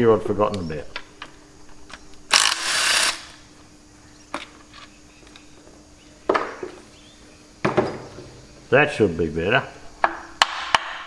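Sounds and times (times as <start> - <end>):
cordless power driver: 2.3 - 3.4.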